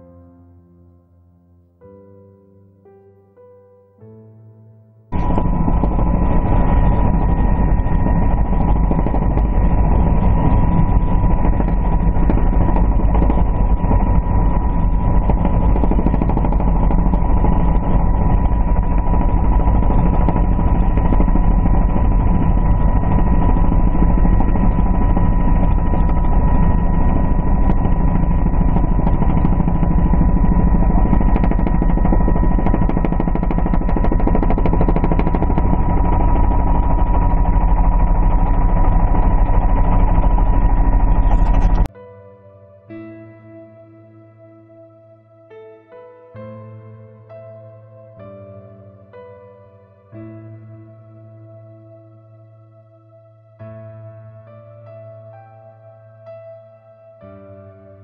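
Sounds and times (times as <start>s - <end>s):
loud steady drone: 5.1s - 41.9s
helicopter rotor chop: 5.2s - 41.9s
high-pitched tone: 5.2s - 41.9s.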